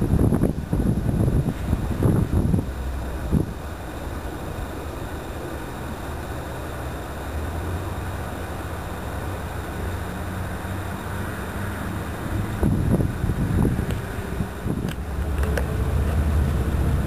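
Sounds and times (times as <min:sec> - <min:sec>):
distant low rumble: 0:00.0 - 0:17.0
wind noise on microphone: 0:00.0 - 0:17.0.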